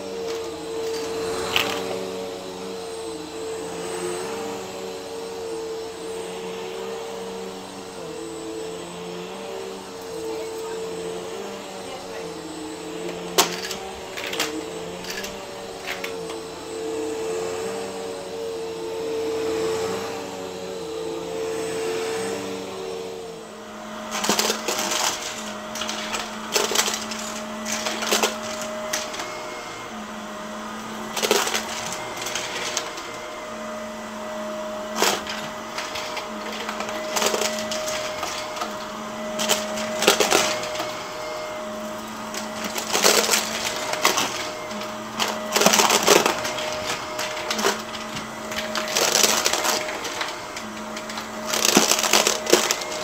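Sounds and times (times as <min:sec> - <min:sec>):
upright vacuum humming: 0:00.0 - 0:53.0
coins clattering through vacuum: 0:00.3 - 0:02.0, 0:13.0 - 0:16.3, 0:24.1 - 0:29.5, 0:31.0 - 0:33.2, 0:34.8 - 0:41.0, 0:41.9 - 0:53.0.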